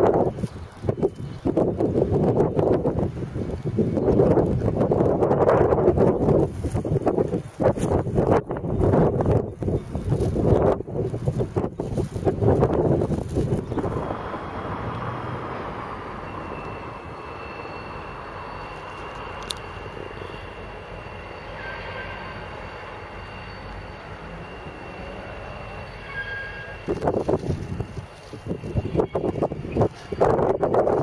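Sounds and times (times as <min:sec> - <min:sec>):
wind buffeting microphone: 0:00.0 - 0:19.5, 0:26.8 - 0:31.0
distant diesel locomotive rumbling: 0:00.0 - 0:31.0.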